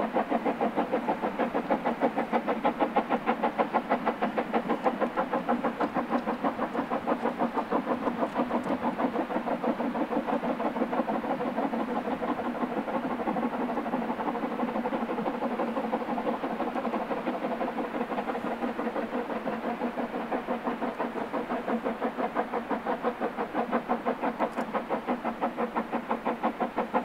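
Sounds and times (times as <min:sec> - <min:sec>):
steam locomotive exhaust beats: 0:00.0 - 0:27.0.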